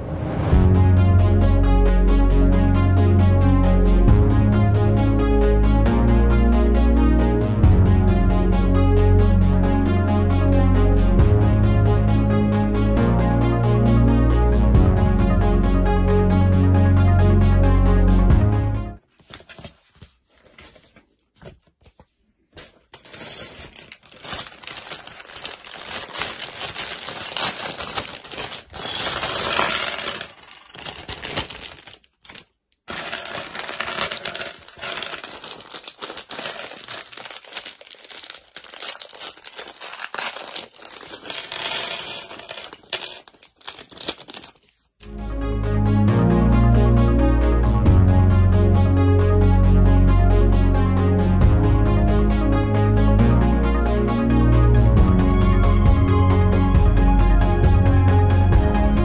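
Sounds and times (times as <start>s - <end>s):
plastic bag crinkling: 19.0s - 21.1s, 22.5s - 45.0s
plastic bricks clicking and rattling: 23.0s - 44.6s.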